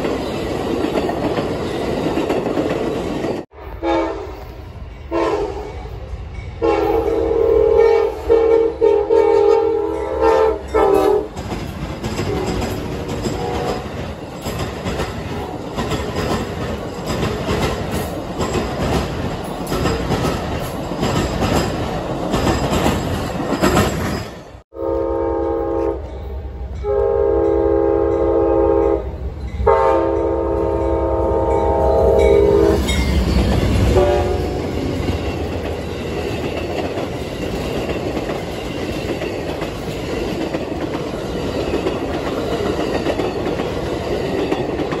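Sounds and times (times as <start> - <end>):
train wheels clattering on rails: 0.0 - 3.5, 10.3 - 24.6, 32.2 - 45.0
diesel locomotive rumbling: 0.0 - 45.0
train horn blasts: 3.5 - 6.0, 6.6 - 11.4, 12.3 - 13.9, 24.7 - 33.0, 33.8 - 34.8.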